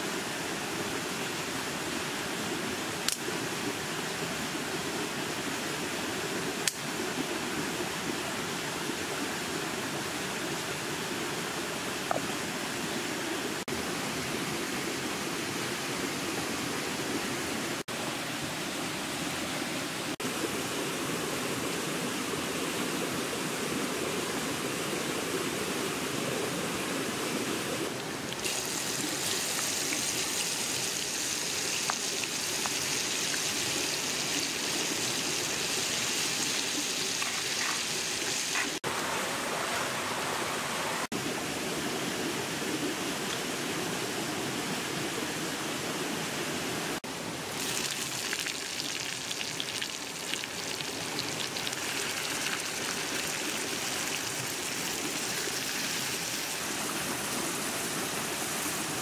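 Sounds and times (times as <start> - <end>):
stream rushing: 0.0 - 59.0
oil sizzling in hot pan: 28.4 - 38.8, 47.6 - 54.8.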